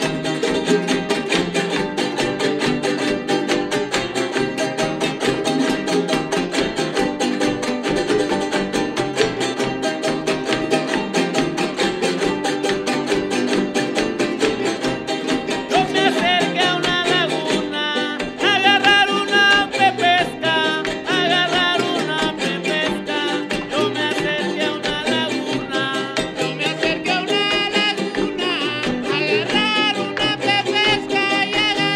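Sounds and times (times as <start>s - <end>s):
jaranas strummed fast: 0.0s - 31.9s
requinto guitar: 0.0s - 31.9s
wavering melody with vibrato: 14.4s - 31.9s.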